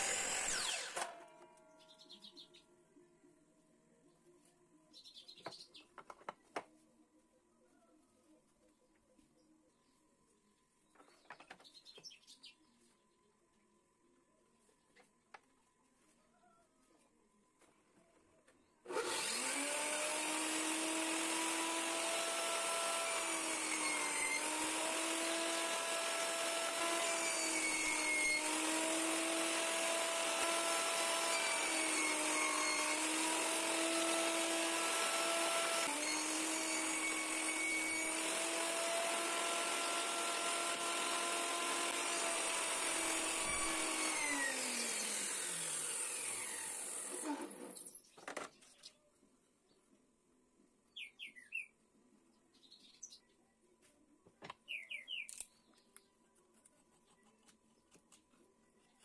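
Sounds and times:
table saw running: 0.0 - 1.3, 18.9 - 47.7
saw cutting wood: 0.0 - 1.4, 18.9 - 48.0.

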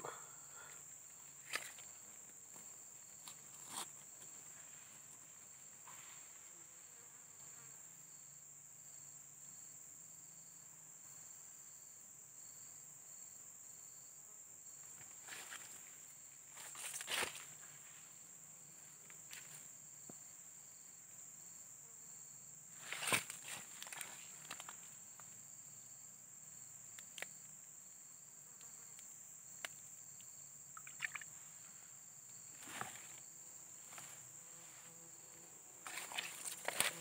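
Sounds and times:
insects droning: 0.0 - 37.0
rustles and knocks in grass: 16.5 - 17.8, 22.8 - 24.9, 32.6 - 34.9, 35.8 - 37.0.

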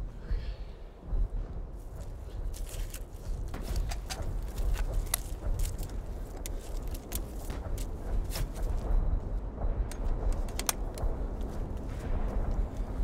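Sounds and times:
steady low rumble: 0.0 - 13.0
sharp cracks and clicks: 2.6 - 8.0, 9.8 - 11.8.

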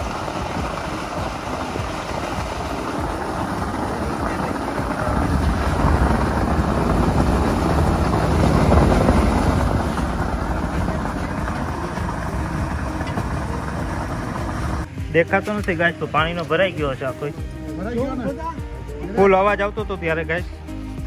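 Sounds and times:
wind buffeting microphone: 0.0 - 14.9
drilling rig engine rumble: 0.0 - 21.0.

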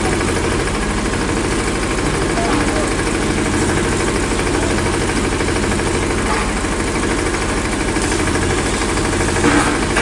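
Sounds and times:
engine running steadily: 0.0 - 10.0.

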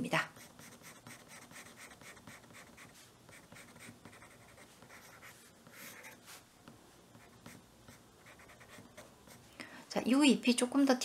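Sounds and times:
pencil scratching on paper: 0.3 - 6.5, 7.1 - 9.4.

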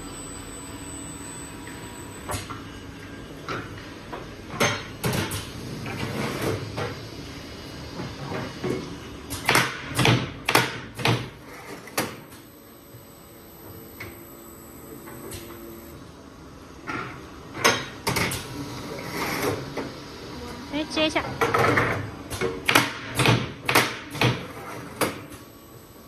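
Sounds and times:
steady machine hum: 6.6 - 16.8, 19.8 - 26.0.

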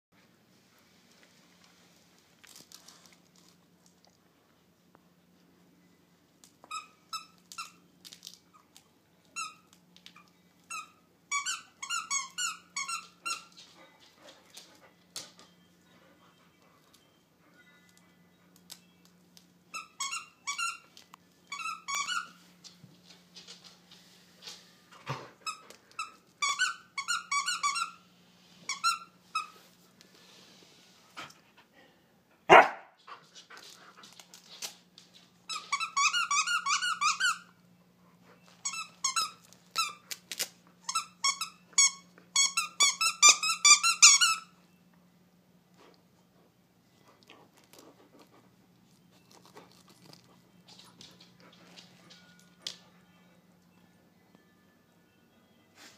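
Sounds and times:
squeaky toy squeaking: 10.7 - 13.5, 19.7 - 20.9, 21.5 - 22.4, 25.4 - 28.0, 35.5 - 37.5, 40.8 - 44.5
dog barking: 32.5 - 33.0
dog chewing toy: 47.2 - 52.2.

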